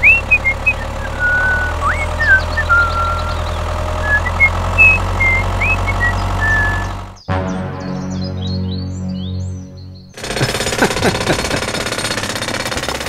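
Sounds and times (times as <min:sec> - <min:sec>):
high whistled chirps: 0:00.0 - 0:07.3
tractor engine idling: 0:00.0 - 0:07.3, 0:10.2 - 0:13.0.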